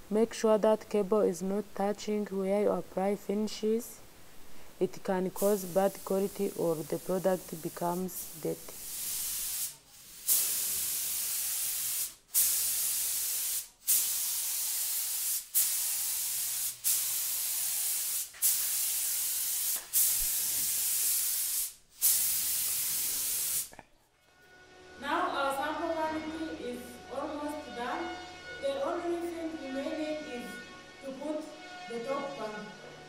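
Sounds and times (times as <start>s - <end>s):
spray gun hissing: 5.4s - 23.7s.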